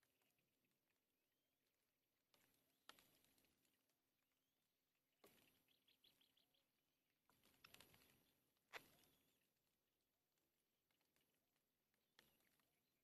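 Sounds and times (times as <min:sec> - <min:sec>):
twigs rustling and clicking: 0:02.2 - 0:13.0
bird chirps: 0:05.3 - 0:06.8.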